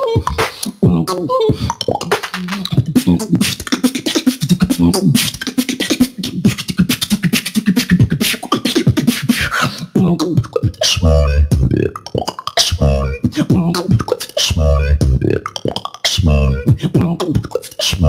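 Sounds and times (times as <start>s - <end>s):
hummed bass tones: 14.6s - 15.4s.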